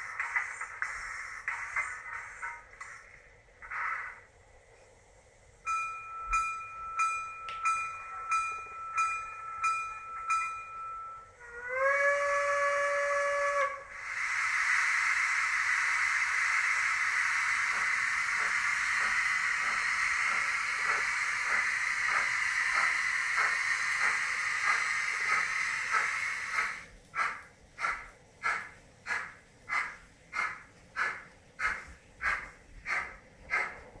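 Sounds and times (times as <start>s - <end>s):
steam locomotive chuffing: 7.7s - 34.0s
steam hiss: 12.7s - 34.0s.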